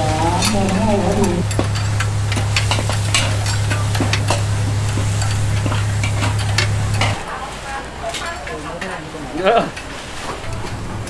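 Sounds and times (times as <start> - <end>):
steady low hum: 0.0 - 7.2.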